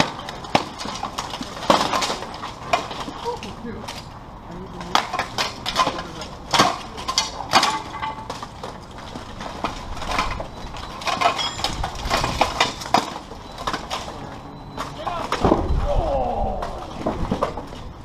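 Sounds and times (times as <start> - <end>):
metal armour clanking: 4.9 - 8.7, 9.8 - 15.9.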